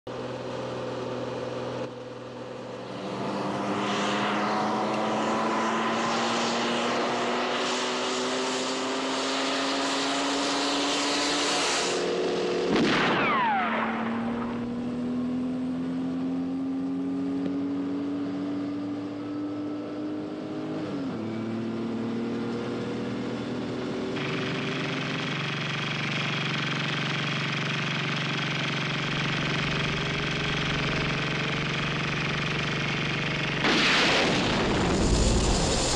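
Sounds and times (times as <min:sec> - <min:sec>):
sports car engines accelerating: 0:00.1 - 0:35.9
car passing by: 0:03.1 - 0:12.0.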